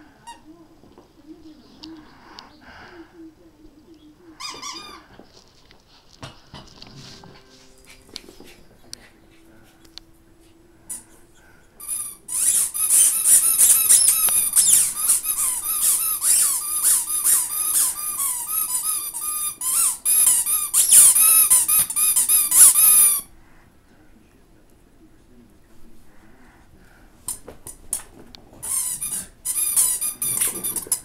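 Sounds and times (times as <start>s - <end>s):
squeaky dog toy squeaking: 4.4s - 5.1s, 11.8s - 23.3s, 28.6s - 31.0s.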